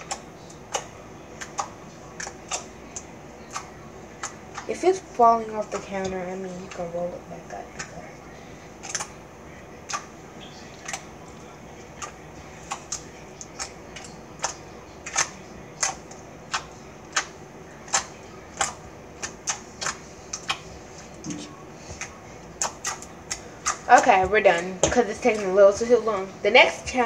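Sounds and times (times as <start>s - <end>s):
slime clicking and popping: 12.0s - 20.6s.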